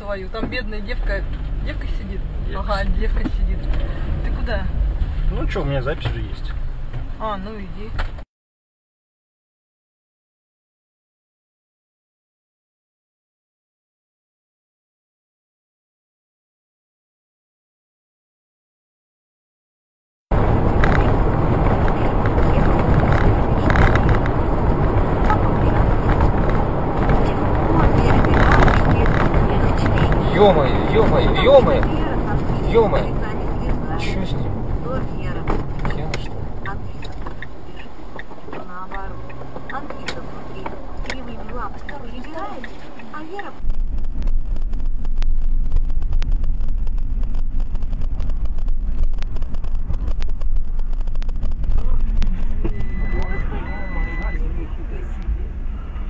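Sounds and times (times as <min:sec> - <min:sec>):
tyre and engine rumble: 0:00.0 - 0:08.2, 0:20.3 - 0:56.0.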